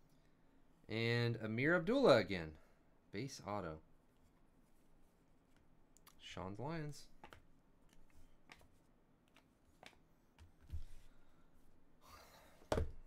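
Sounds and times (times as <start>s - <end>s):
soft rustle: 4.0s - 5.8s
cards tapping on desk mat: 7.2s - 7.5s.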